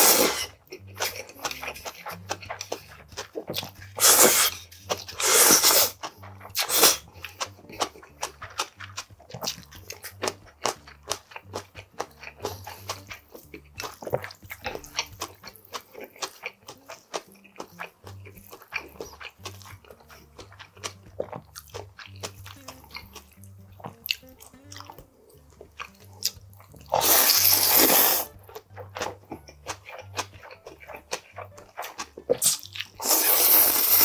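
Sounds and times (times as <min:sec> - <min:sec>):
slurping noodles: 0:00.0 - 0:16.5, 0:26.2 - 0:30.2, 0:31.8 - 0:34.0
chewing with crunchy clicks: 0:00.4 - 0:34.0.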